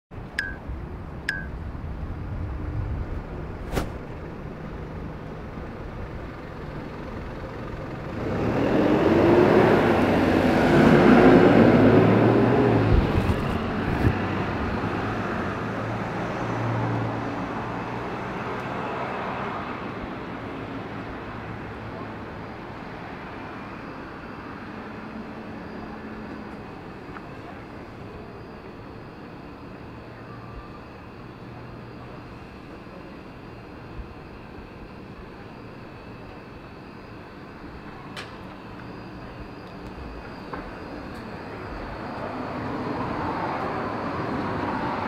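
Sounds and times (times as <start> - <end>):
street background noise: 0.1 - 45.0
road vehicle passing by: 2.0 - 28.3, 40.7 - 45.0.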